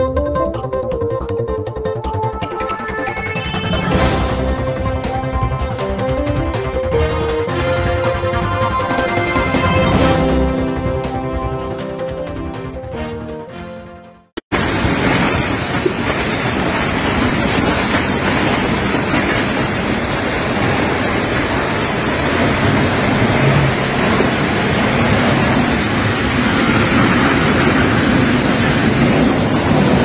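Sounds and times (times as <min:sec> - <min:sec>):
wind blowing across microphone: 0:14.6 - 0:30.0.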